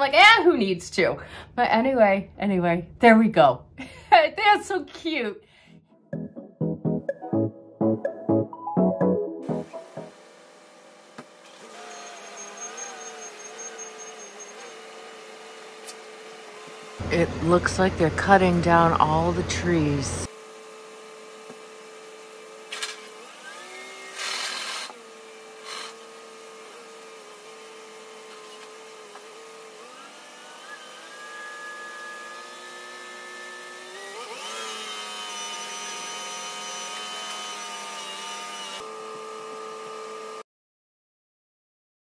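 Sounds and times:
heavy machinery engine running: 17.0 - 20.3.

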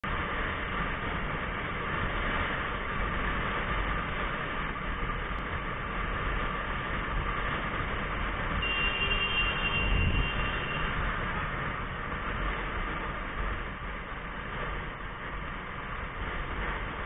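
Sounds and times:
motorcycle road noise: 0.0 - 17.0
wind rush: 9.5 - 17.0.

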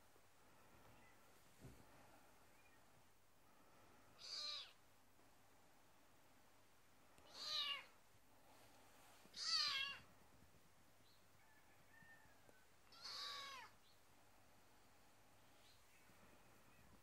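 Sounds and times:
kittens mewing: 12.9 - 13.8.

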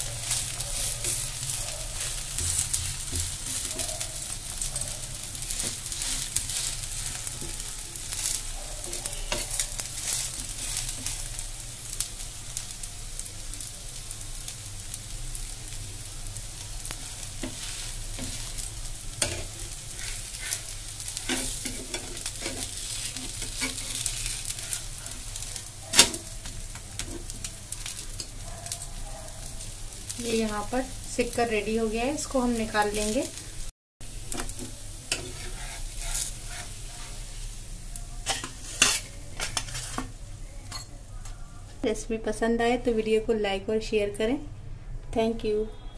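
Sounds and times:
pancake sizzling in oil: 0.0 - 40.2
metal spatula scraping a pan: 0.1 - 4.0, 5.4 - 11.3, 17.1 - 26.4, 34.3 - 37.5, 38.2 - 40.2.

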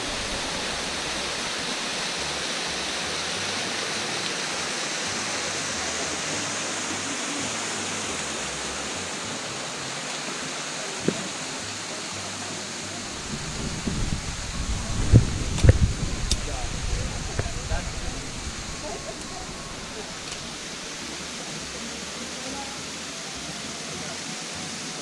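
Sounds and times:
low rumbling: 0.0 - 2.0, 12.9 - 21.3
waterfall splashing on rocks: 0.0 - 25.0.

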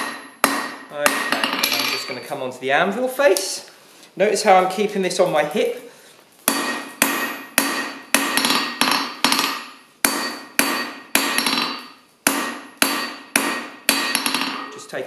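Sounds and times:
hammer striking hot steel on anvil: 0.0 - 2.2, 6.5 - 14.8.

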